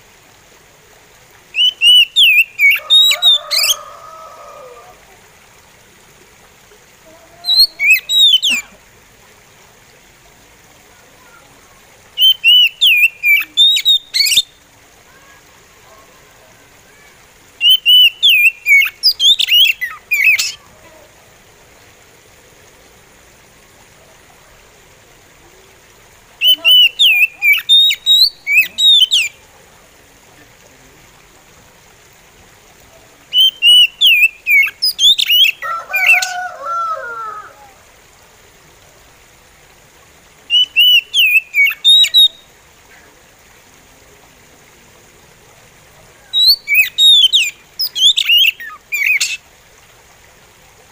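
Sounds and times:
bird singing whistled phrases: 1.6s - 3.8s, 7.4s - 8.6s, 12.2s - 14.6s, 17.6s - 20.6s, 26.4s - 29.4s, 33.3s - 36.3s, 40.5s - 42.4s, 46.3s - 49.4s.

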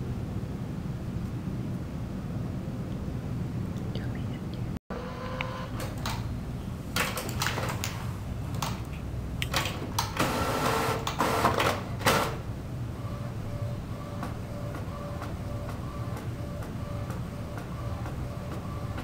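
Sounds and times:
steady low hum: 0.0s - 11.0s, 11.9s - 19.0s
printer clicks and whirs: 5.0s - 6.3s, 7.0s - 8.9s, 9.5s - 19.0s.

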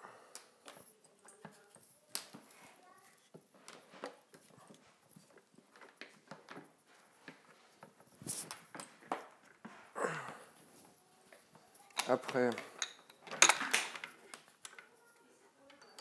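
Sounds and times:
rubbing sound: 7.5s - 8.6s
metal frame clicks and knocks: 11.9s - 14.8s.

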